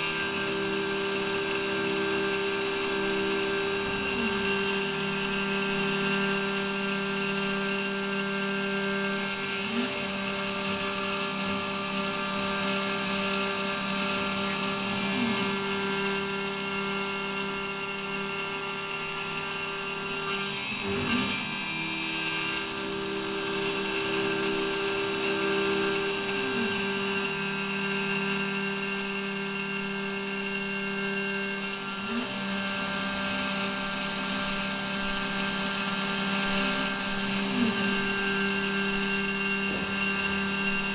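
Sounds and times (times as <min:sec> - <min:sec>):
end mill chattering cut: 0:00.0 - 0:17.5, 0:18.4 - 0:40.9
milling spindle whine: 0:00.0 - 0:40.9.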